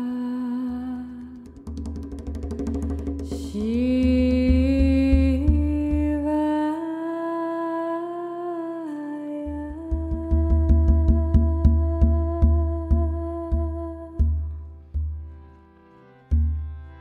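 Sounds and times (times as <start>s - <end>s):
drum strokes: 1.4s - 6.0s, 9.9s - 15.4s
person singing long notes: 3.4s - 14.5s.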